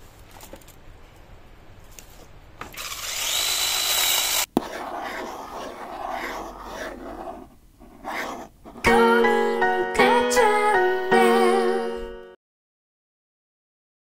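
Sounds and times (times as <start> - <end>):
mini chainsaw buzzing: 2.7 - 4.5.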